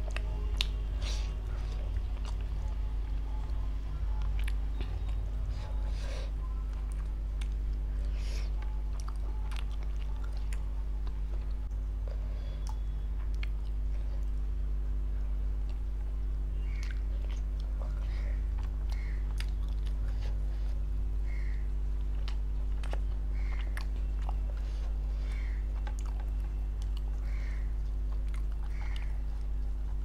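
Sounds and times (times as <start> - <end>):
steady low hum: 0.0 - 30.0
chewing and mouth smacks: 3.4 - 5.2, 6.7 - 11.6, 12.5 - 14.4, 16.8 - 20.4, 21.9 - 30.0.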